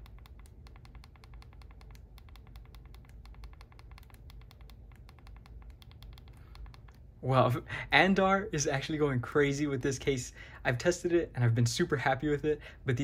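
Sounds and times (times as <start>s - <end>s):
phone buttons clicking: 0.0s - 7.0s.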